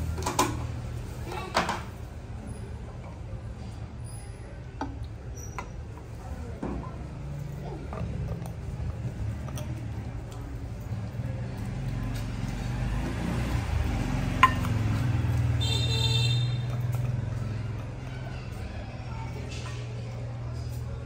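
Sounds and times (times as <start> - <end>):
motor vehicle passing: 7.0 - 21.0
glass bottle clinking: 14.4 - 14.9.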